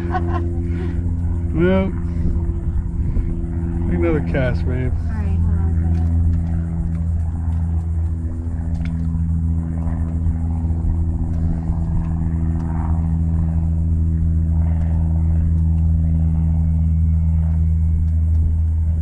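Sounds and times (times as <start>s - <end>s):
outboard motor idling: 0.0s - 2.5s, 3.5s - 12.0s.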